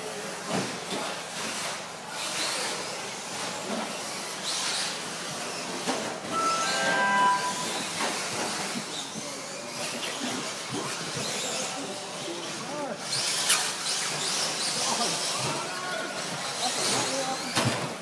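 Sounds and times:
short high whines: 0:06.3 - 0:08.3.

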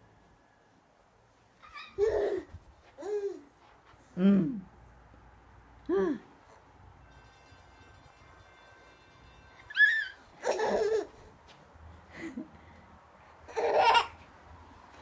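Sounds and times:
toddler squealing with laughter: 0:01.6 - 0:03.4, 0:09.7 - 0:11.1.

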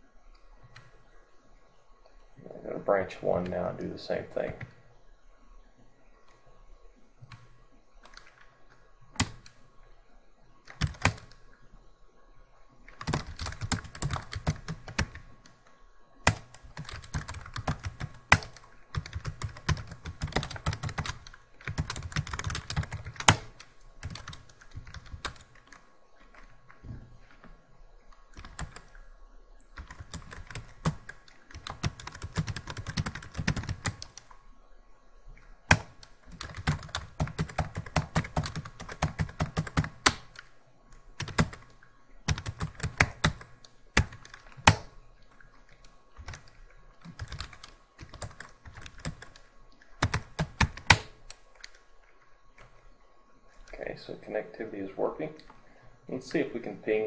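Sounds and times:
computer keyboard typing: 0:07.2 - 0:08.4, 0:09.1 - 0:09.6, 0:10.7 - 0:11.4, 0:12.9 - 0:15.6, 0:16.2 - 0:26.5, 0:28.3 - 0:29.0, 0:29.8 - 0:34.3, 0:35.7 - 0:40.5, 0:41.2 - 0:44.9, 0:46.2 - 0:51.8.

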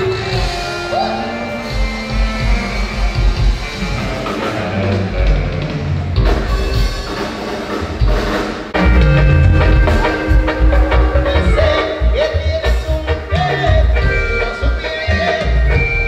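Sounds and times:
live dance band playing: 0:00.0 - 0:16.0.

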